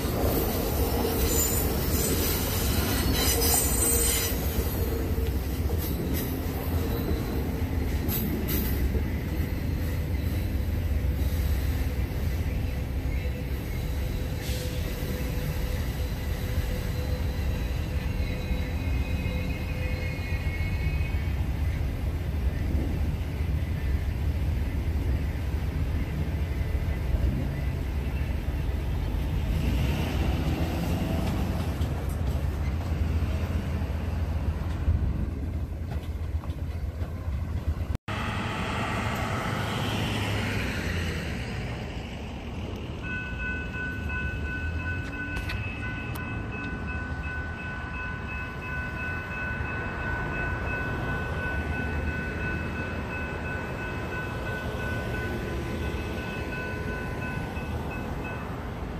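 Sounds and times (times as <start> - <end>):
crossing warning bell: 0.0 - 22.2, 42.8 - 58.9.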